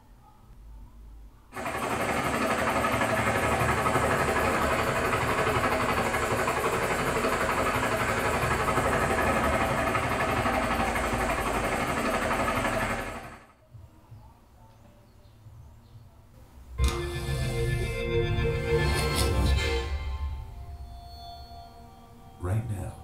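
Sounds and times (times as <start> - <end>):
helicopter rotor and engine: 1.6 - 13.4.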